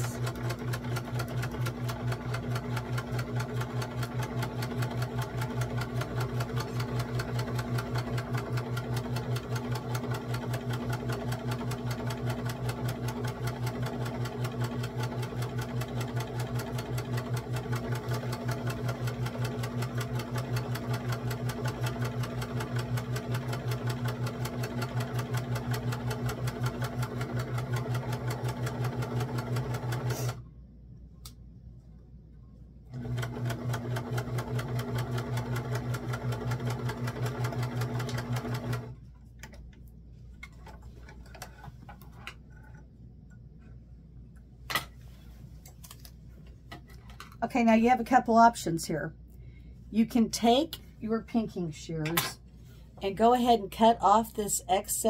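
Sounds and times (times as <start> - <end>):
electric sewing machine stitching: 0.0 - 30.4, 32.9 - 39.0.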